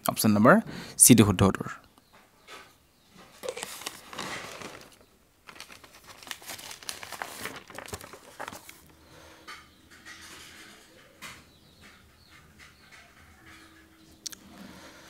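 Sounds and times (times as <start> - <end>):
crinkling and rustling: 2.6 - 13.9.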